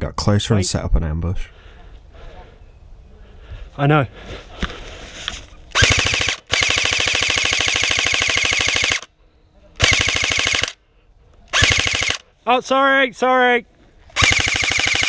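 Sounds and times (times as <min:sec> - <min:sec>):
airsoft rifle firing bursts: 0:05.7 - 0:09.1, 0:09.8 - 0:10.8, 0:11.5 - 0:12.2, 0:14.2 - 0:15.0.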